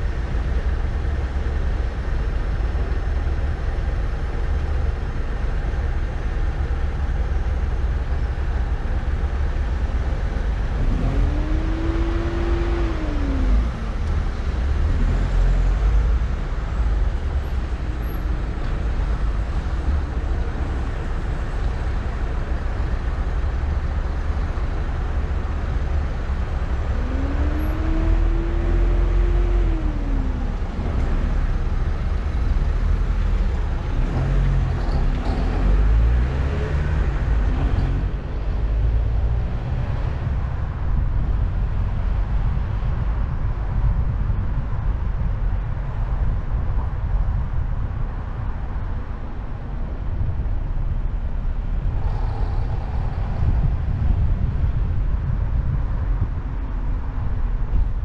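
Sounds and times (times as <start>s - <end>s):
car engine and road rumble: 0.0s - 58.0s
engine note rising: 26.8s - 40.3s.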